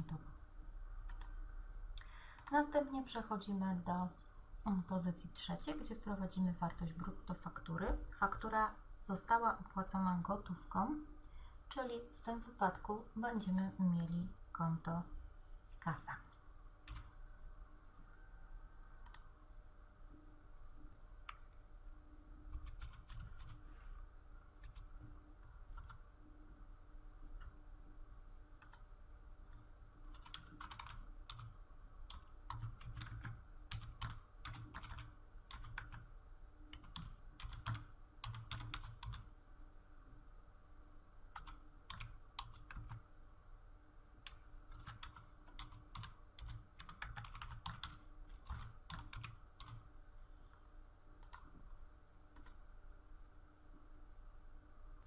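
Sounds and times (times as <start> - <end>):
low steady hum: 0.0 - 55.0
typing on computer keyboard: 2.4 - 2.6, 16.9 - 17.1, 22.5 - 23.6, 25.7 - 26.0, 29.5 - 36.1, 36.7 - 39.3, 41.3 - 43.0, 44.2 - 49.9, 52.4 - 52.6.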